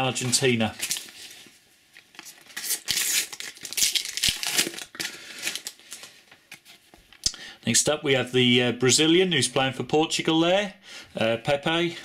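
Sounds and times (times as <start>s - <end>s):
sticker wrapper tearing and crinkling: 2.1s - 6.1s.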